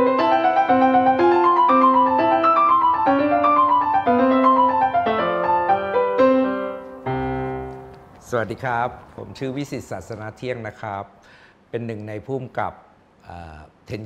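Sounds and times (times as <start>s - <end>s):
piano melody: 0.0s - 9.2s.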